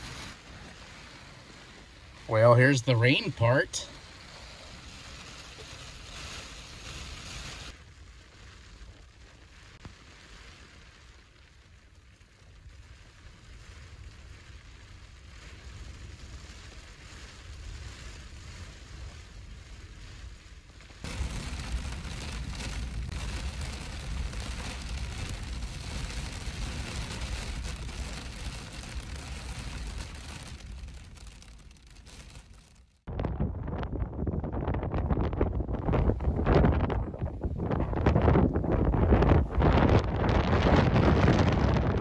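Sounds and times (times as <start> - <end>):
rain against a window: 0.0 - 33.1
wind buffeting microphone: 13.4 - 32.5, 33.1 - 42.0.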